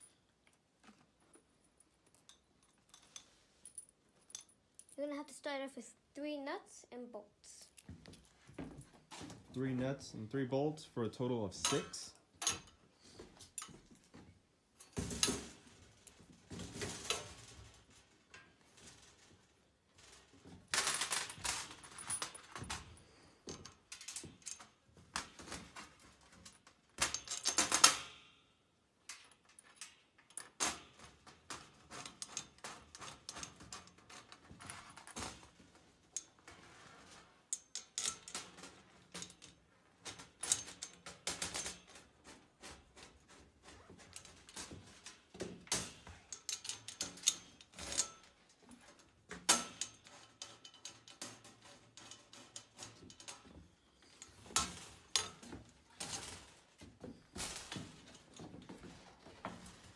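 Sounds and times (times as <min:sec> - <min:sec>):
metal parts clinking and rattling: 0:00.0 - 0:05.0, 0:11.5 - 0:14.1, 0:14.8 - 0:59.9
small metal clicks: 0:00.0 - 0:05.0, 0:20.0 - 0:43.1, 0:44.0 - 0:56.6.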